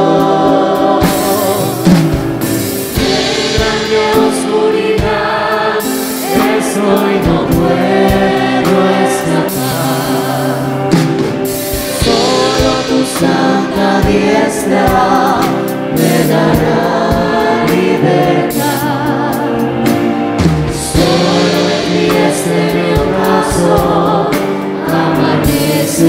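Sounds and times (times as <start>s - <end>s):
live band playing worship song: 0.0s - 26.0s
voices singing: 0.0s - 26.0s
cymbal crashes: 1.0s - 8.7s, 9.5s - 16.2s, 20.4s - 24.6s.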